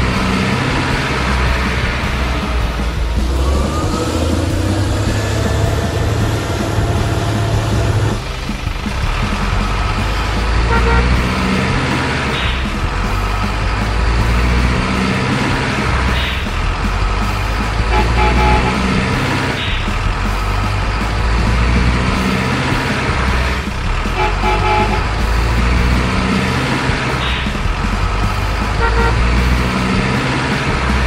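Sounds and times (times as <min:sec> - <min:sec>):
toy truck engine rumble: 0:00.0 - 0:31.0
toy truck horn tooting: 0:10.7 - 0:11.3, 0:17.9 - 0:18.9, 0:24.2 - 0:25.1, 0:28.8 - 0:29.3.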